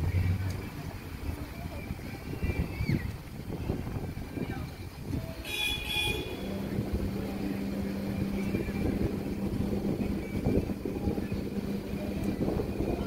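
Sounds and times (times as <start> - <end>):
wind buffeting microphone: 0.0 - 13.0
steady low hum: 6.0 - 13.0.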